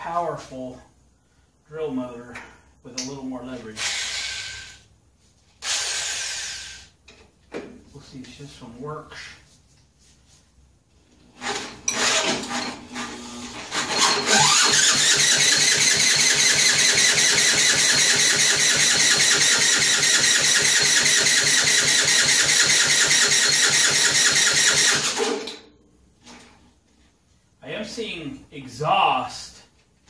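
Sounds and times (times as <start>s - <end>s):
electric drill cranking engine: 5.6s - 6.9s, 11.4s - 25.5s.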